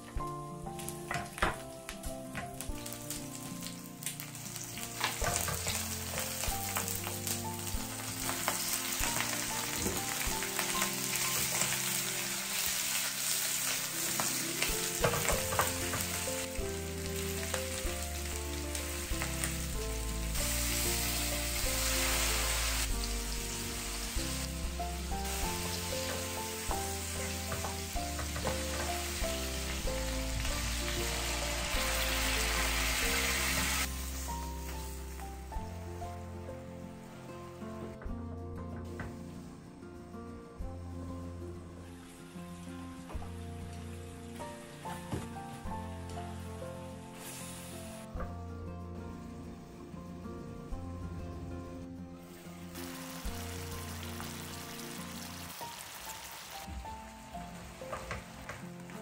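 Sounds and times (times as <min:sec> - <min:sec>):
soft background music: 0:00.0 - 0:59.0
shrimp sizzling in oil: 0:02.6 - 0:35.7, 0:43.8 - 0:48.1, 0:52.3 - 0:59.0.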